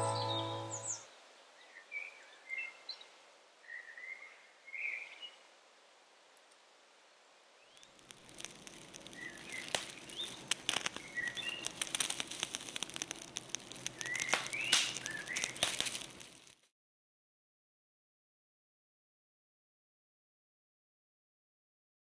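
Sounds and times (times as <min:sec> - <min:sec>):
small birds chirping: 0:07.6 - 0:16.3
sharp crackling clicks: 0:07.8 - 0:16.7.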